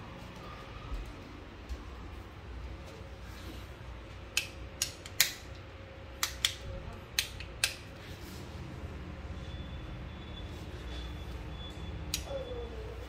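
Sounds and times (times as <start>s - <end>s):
faint room hum: 0.0s - 13.0s
sharp clicks and taps: 4.3s - 5.6s.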